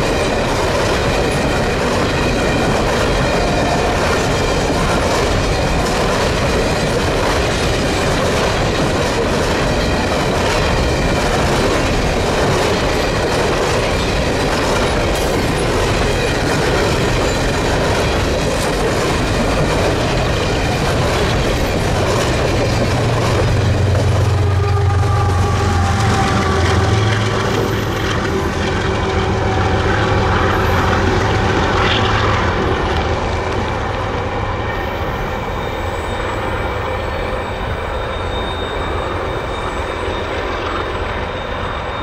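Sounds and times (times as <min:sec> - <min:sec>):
train wheels clacking over rail joints: 0:00.0 - 0:36.4
diesel locomotive hum: 0:00.0 - 0:42.0
wheel squeal: 0:34.8 - 0:42.0.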